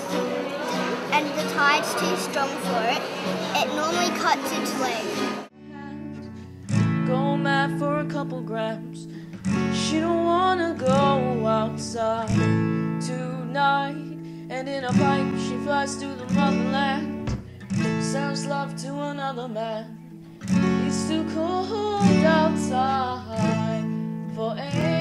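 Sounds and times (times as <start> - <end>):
acoustic guitar strumming: 0.0 - 25.0
person singing: 5.6 - 17.2, 20.6 - 25.0.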